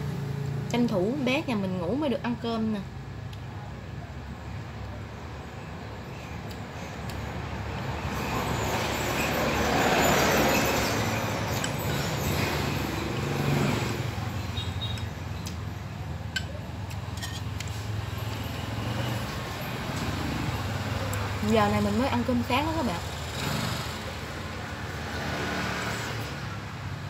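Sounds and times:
vehicle passing: 7.0s - 15.6s, 17.6s - 27.0s.

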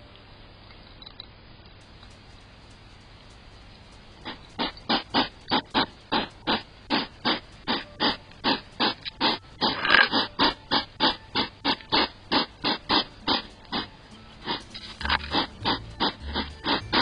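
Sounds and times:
hedgehog huffing: 4.2s - 17.0s.

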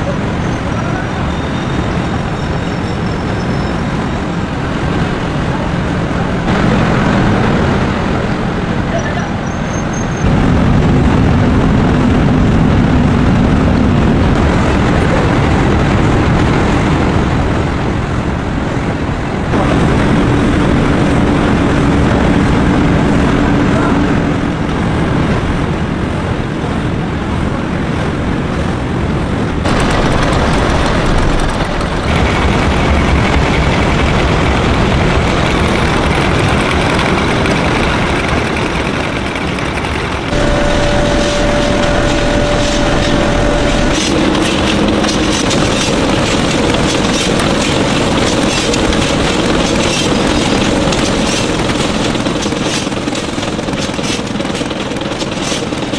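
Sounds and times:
factory machinery running: 0.0s - 55.9s
low hum: 29.6s - 55.1s.

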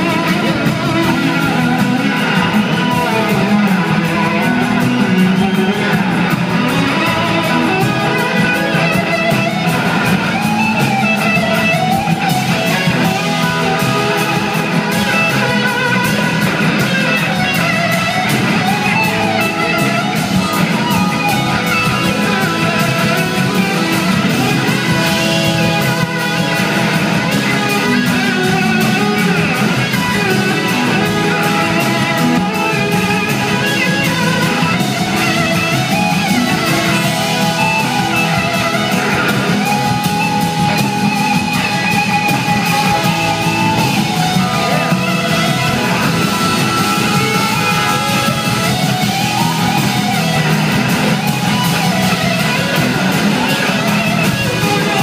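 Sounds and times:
blues-rock band playing: 0.0s - 55.0s
electric slide guitar solo: 0.0s - 55.0s.

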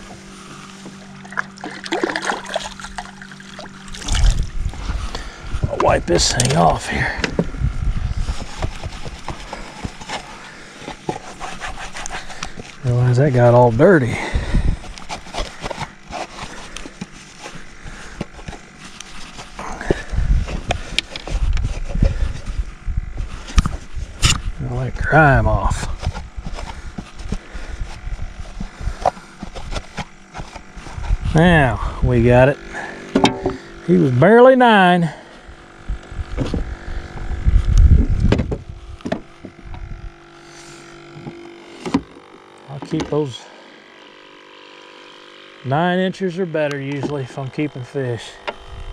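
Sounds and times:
low thumps and rumbles: 3.9s - 10.0s, 19.8s - 30.0s, 35.5s - 40.1s
towel rubbing plastic board: 8.2s - 12.8s.

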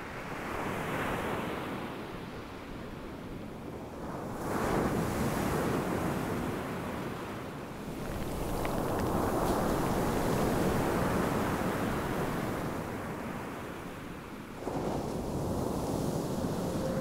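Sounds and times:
waves breaking on rocky shore: 7.8s - 17.0s.

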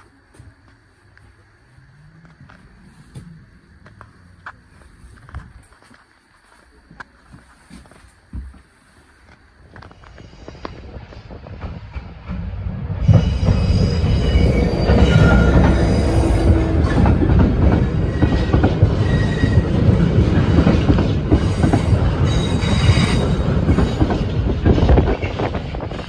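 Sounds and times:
train wheels squealing on rails: 9.7s - 26.0s
diesel locomotive passing: 10.0s - 26.0s.

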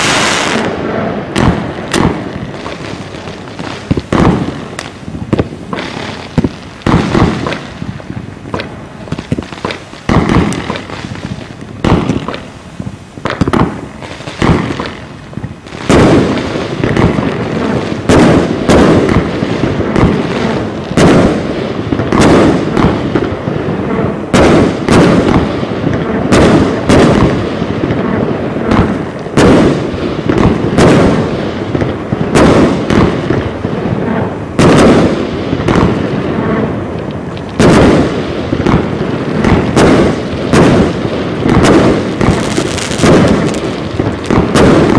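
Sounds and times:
firework launch thumps and bursts: 0.0s - 17.4s, 18.0s - 23.2s, 34.6s - 36.0s, 37.3s - 44.9s
firework crackle: 0.0s - 44.9s.

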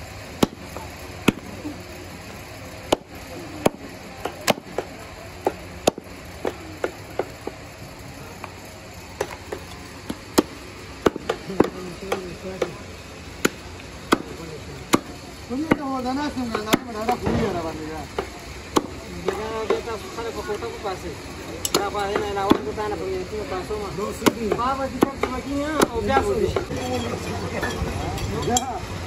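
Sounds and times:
cleaver chopping meat on wood: 0.4s - 0.6s, 2.9s - 7.6s, 9.2s - 12.8s, 13.4s - 14.3s, 14.9s - 15.9s, 24.2s - 26.7s.

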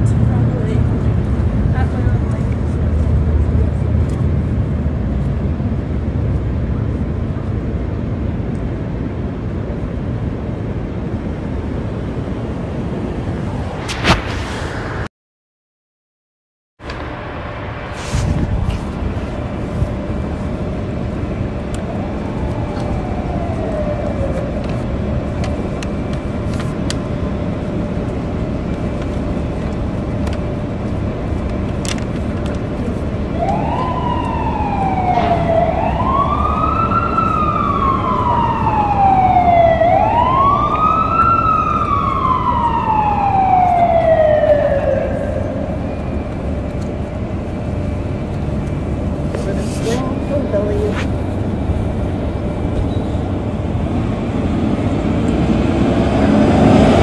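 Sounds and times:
city traffic rumble: 0.0s - 15.1s, 16.8s - 57.0s
emergency vehicle siren: 16.9s - 57.0s.

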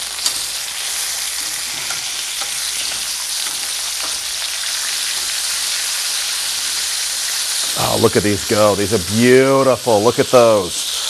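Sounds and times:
chicken sizzling in a skillet: 0.0s - 11.0s
tongs clicking: 1.3s - 5.4s.

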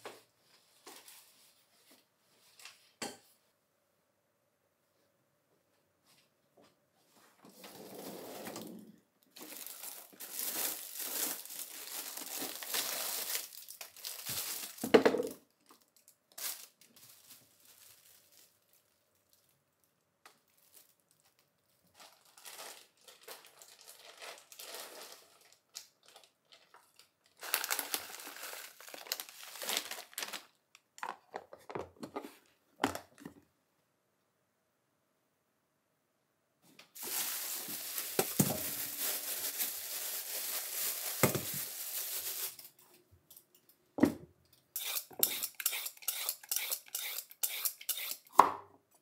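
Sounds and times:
packaging crinkling and rustling: 7.5s - 31.6s, 36.9s - 42.9s.

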